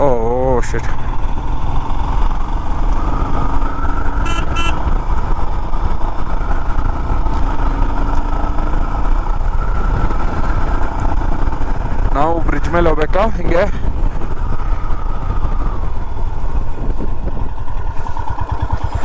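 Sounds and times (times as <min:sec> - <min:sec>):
motorcycle engine running: 0:00.0 - 0:19.0
short horn beeps: 0:04.2 - 0:04.9
wind noise on microphone: 0:09.3 - 0:12.1, 0:13.8 - 0:18.9.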